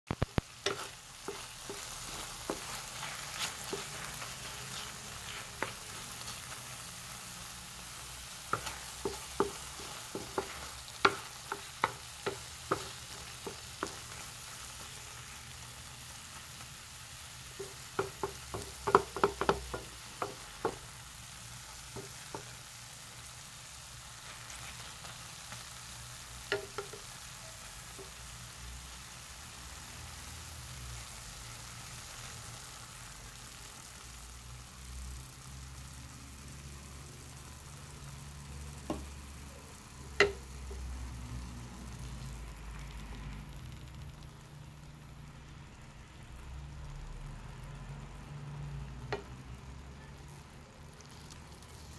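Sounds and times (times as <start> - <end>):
spatula scraping and knocking pan: 0.1 - 15.3, 17.5 - 21.0, 21.8 - 22.6, 26.4 - 27.1
vegetables sizzling in frying pan: 0.1 - 51.9.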